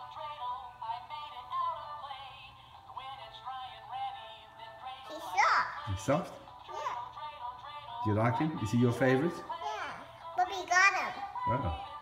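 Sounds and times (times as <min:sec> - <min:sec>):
tinny toy voice singing: 0:00.0 - 0:12.0.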